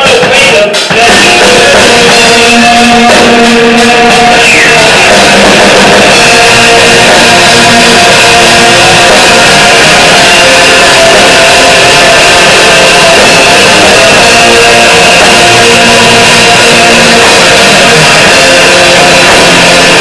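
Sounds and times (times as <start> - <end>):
bass guitar: 0.0 - 20.0
drums: 0.0 - 20.0
electric guitars: 0.1 - 20.0.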